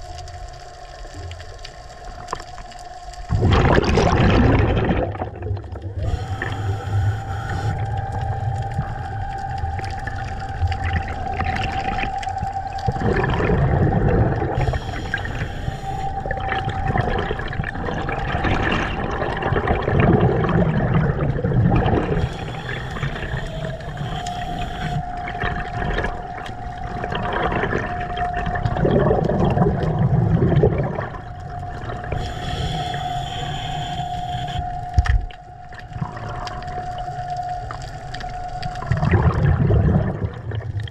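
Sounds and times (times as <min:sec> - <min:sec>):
water rushing underwater: 0:00.0 - 0:40.9
steady high hum: 0:05.8 - 0:28.8, 0:31.0 - 0:40.3.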